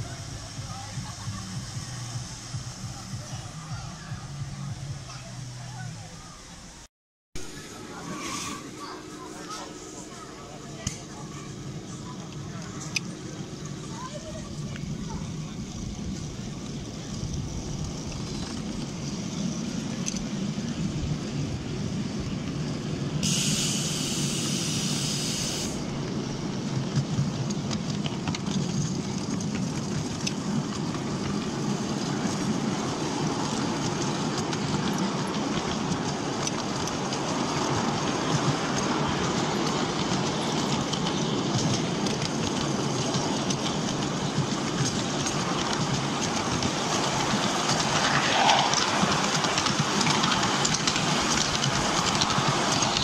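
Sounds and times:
high hiss: 0:00.0 - 0:06.8, 0:23.2 - 0:25.9
brief squeal: 0:08.0 - 0:08.8
small train wheels clattering: 0:09.4 - 0:53.0.

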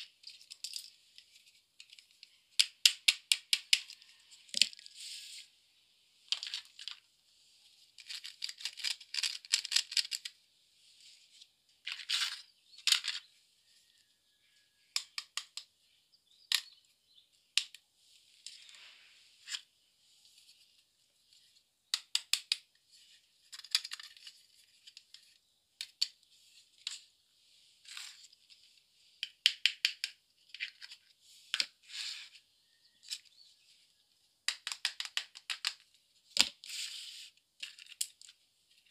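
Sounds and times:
plastic toy pieces clattering: 0:00.0 - 0:00.9, 0:06.3 - 0:07.0, 0:08.0 - 0:10.4, 0:11.9 - 0:13.3, 0:23.5 - 0:26.2.

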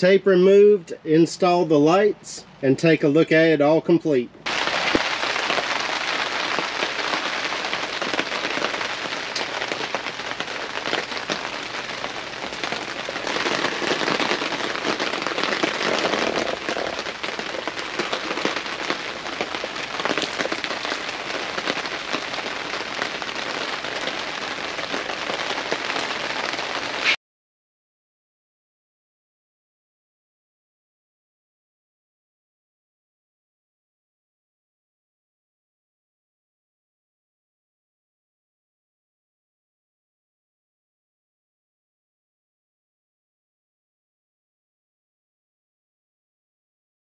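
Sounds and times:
steady rain falling: 0:04.4 - 0:27.2.

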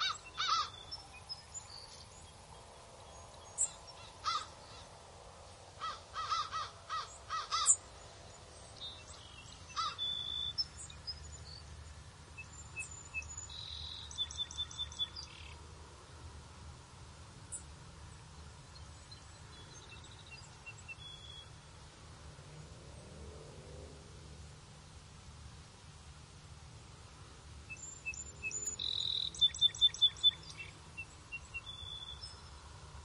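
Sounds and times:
harsh bird caws: 0:00.0 - 0:00.8, 0:04.0 - 0:05.0, 0:05.8 - 0:07.8, 0:09.7 - 0:10.2
bird chirps and twitters: 0:27.7 - 0:32.4.

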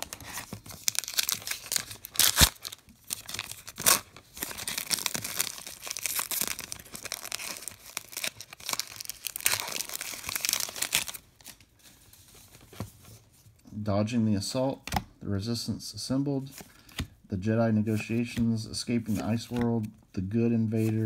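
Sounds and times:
wrapper tearing and crinkling: 0:00.0 - 0:11.6.

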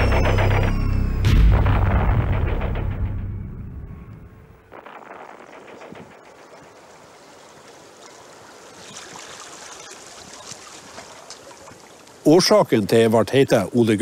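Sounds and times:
water lapping gently: 0:06.1 - 0:13.6.

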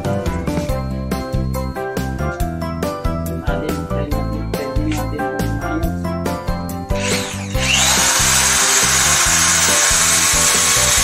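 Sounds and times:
electric drill whining: 0:06.9 - 0:11.0.

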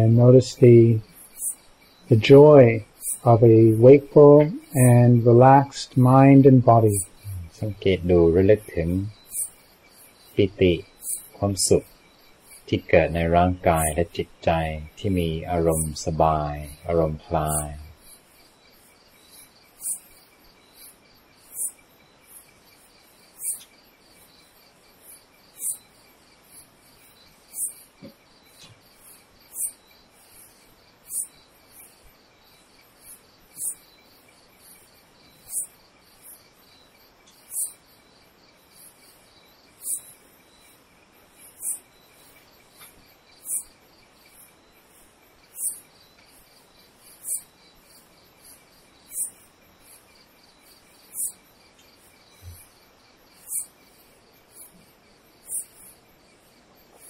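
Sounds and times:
insect chirping: 0:00.0 - 0:57.0
insect trilling: 0:00.0 - 0:57.0.

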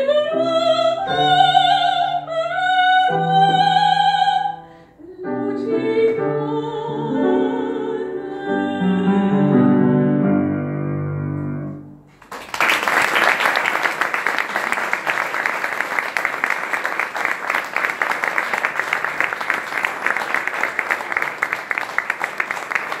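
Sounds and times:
person singing with piano: 0:00.0 - 0:10.2
audience applause: 0:12.1 - 0:23.0
hands clapping close by: 0:12.1 - 0:23.0.

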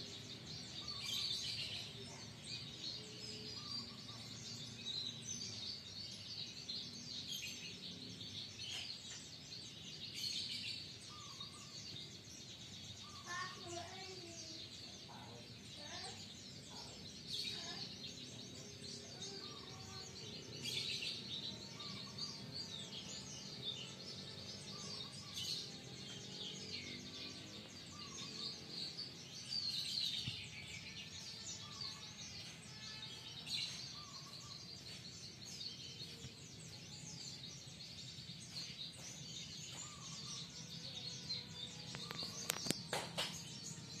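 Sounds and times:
birds chirping: 0:00.0 - 0:44.0.

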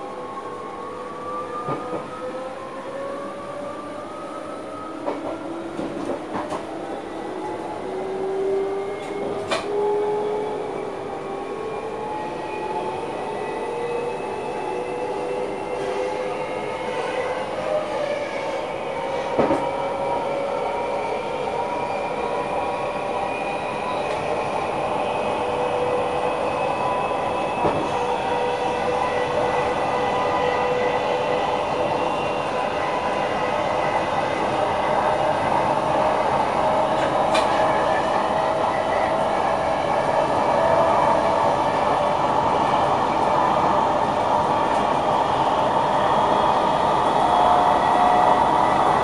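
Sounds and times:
train wheels rolling on rails: 0:00.0 - 0:49.0.

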